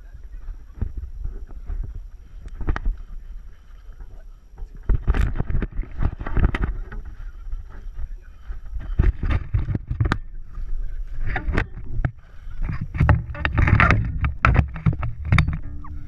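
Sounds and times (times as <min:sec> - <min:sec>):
wind on microphone: 0:00.0 - 0:16.0
low rumble: 0:10.2 - 0:16.0
camera handling knocks and rustling: 0:11.3 - 0:15.6.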